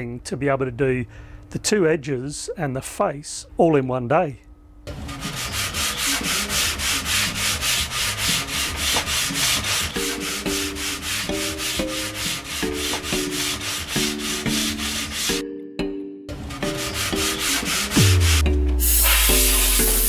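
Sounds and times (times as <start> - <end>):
sandpaper rubbing on wood: 5.1 - 15.4, 16.6 - 20.0.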